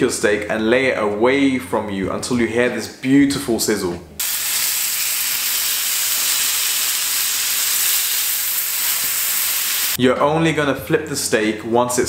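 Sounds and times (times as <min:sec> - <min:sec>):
steak sizzling in a frying pan: 0:04.2 - 0:10.0.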